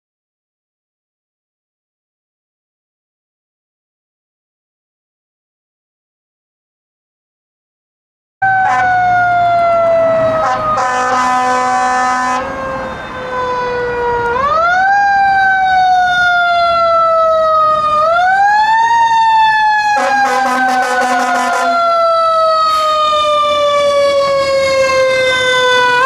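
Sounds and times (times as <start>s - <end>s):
fire engine siren wailing: 8.4s - 26.0s
horn blast: 8.5s - 9.1s, 10.4s - 12.6s, 20.0s - 22.0s.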